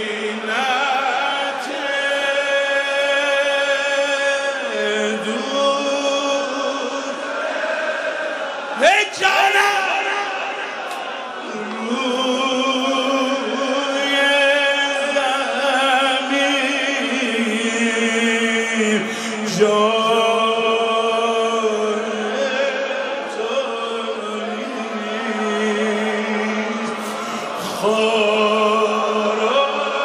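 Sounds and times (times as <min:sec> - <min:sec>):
man chanting a mournful lament: 0:00.0 - 0:07.2, 0:11.4 - 0:30.0.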